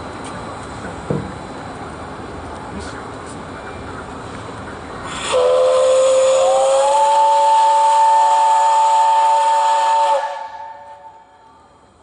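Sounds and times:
hiss of steam: 0:04.2 - 0:11.6
steam whistle blast: 0:05.1 - 0:11.4.

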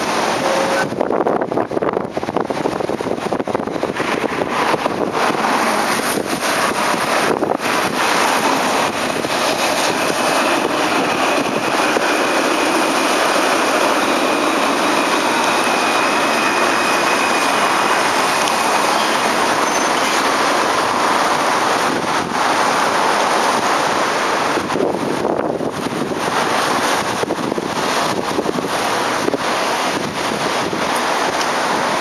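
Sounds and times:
tram rolling hiss: 0:03.4 - 0:32.0
faint high whine: 0:09.5 - 0:20.6.

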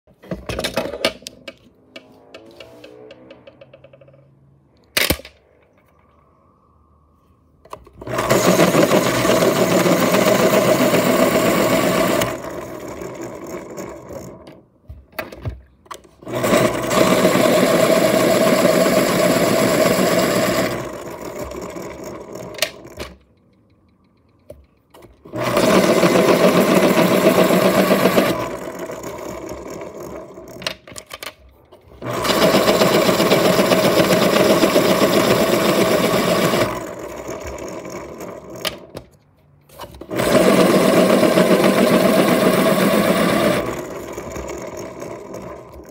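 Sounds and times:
electric pencil sharpener grinding: 0:08.0 - 0:14.6, 0:16.2 - 0:23.2, 0:25.2 - 0:30.8, 0:32.0 - 0:38.9, 0:40.0 - 0:45.9.

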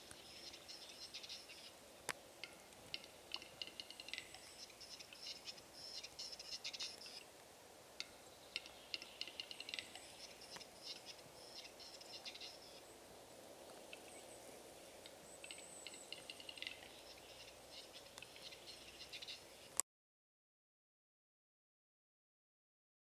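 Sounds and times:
bird clicking display song: 0:00.0 - 0:07.2, 0:08.0 - 0:12.8, 0:13.7 - 0:14.3, 0:14.9 - 0:19.8.

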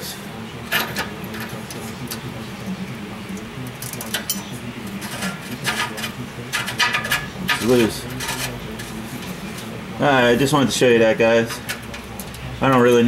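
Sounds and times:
metal tools clinking and rattling: 0:00.7 - 0:01.5, 0:03.8 - 0:08.9, 0:11.4 - 0:13.0.

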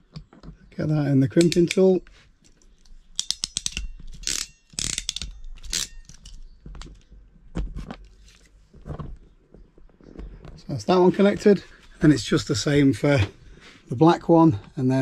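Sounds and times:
crimping tool clicks: 0:01.4 - 0:02.0
rasping clicks of crimp closing: 0:01.4 - 0:07.1.

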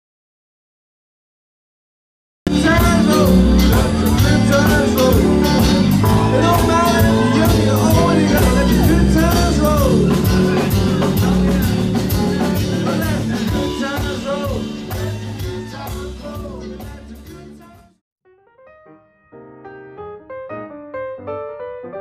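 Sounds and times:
rock guitar: 0:02.5 - 0:17.7
person singing: 0:02.5 - 0:17.9
steady drum beat: 0:02.5 - 0:17.9.

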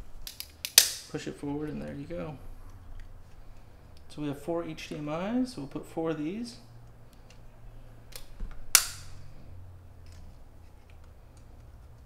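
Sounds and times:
plastic snaps of couplers: 0:00.2 - 0:01.1, 0:08.1 - 0:09.1.

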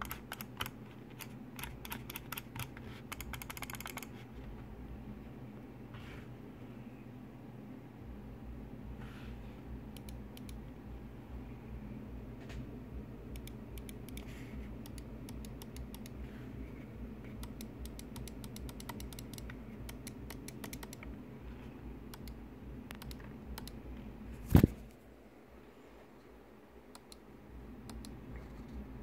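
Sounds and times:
steady low hum: 0:00.0 - 0:29.0
mouse buttons clicking: 0:13.4 - 0:16.2, 0:17.4 - 0:21.1, 0:22.1 - 0:23.8, 0:27.8 - 0:28.2.

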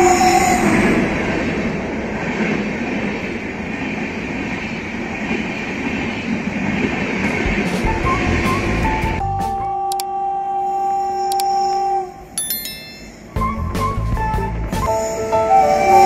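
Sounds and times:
train coaches rumbling on track: 0:00.0 - 0:09.2.

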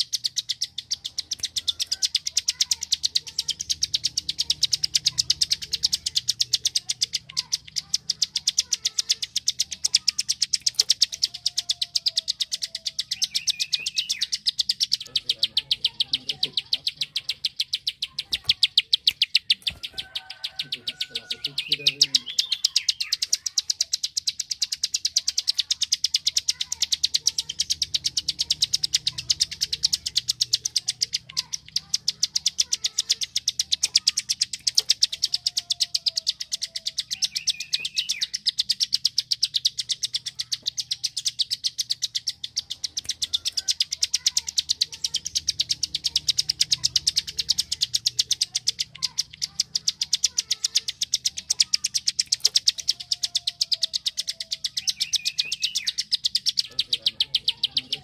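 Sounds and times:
bird rapid clicking call: 0:00.0 - 0:58.0.

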